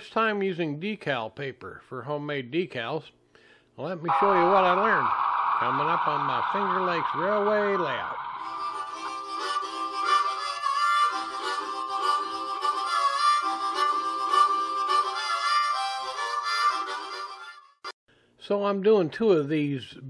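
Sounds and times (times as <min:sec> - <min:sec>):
harmonica theme music: 0:04.1 - 0:18.0.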